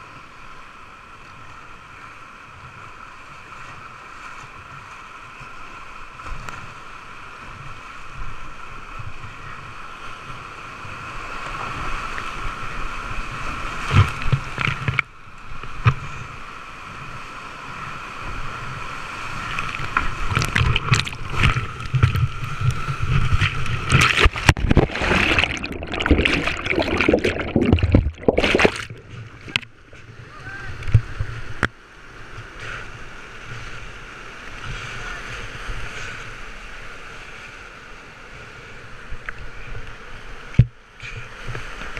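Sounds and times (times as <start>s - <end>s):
whitewater rushing: 19.0s - 31.3s
water splashing on camera: 19.2s - 31.7s.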